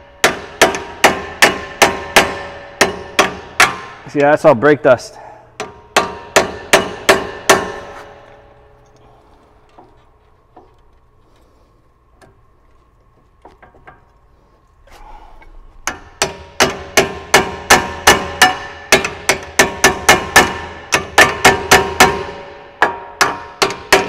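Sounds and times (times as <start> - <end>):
hammer striking metal: 0.1 - 4.4, 5.6 - 8.3, 15.8 - 24.0.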